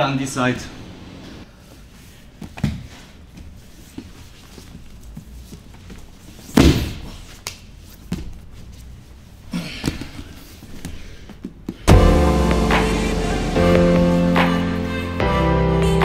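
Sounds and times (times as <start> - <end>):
bodies thudding on foam mats: 5.5 - 7.3.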